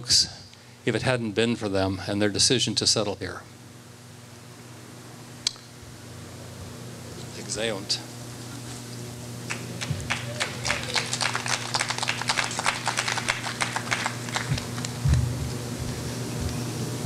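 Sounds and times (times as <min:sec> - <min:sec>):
steady low hum: 0:00.0 - 0:17.0
audience applause: 0:09.5 - 0:15.0.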